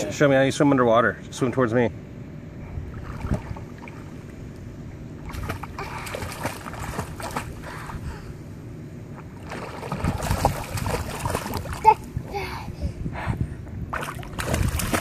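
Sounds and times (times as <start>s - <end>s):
pool water splashing: 2.8s - 4.6s, 5.2s - 8.0s, 9.0s - 12.1s, 13.9s - 15.0s.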